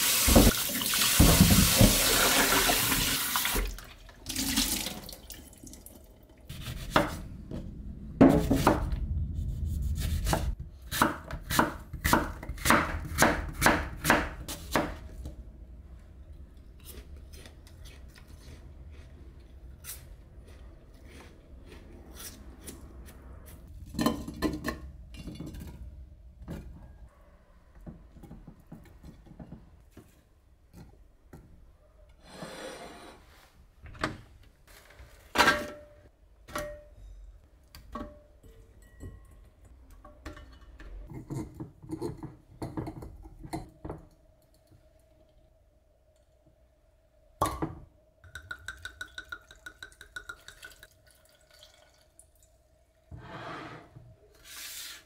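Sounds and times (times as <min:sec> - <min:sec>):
dishes and utensils clinking: 0:37.9 - 0:43.7.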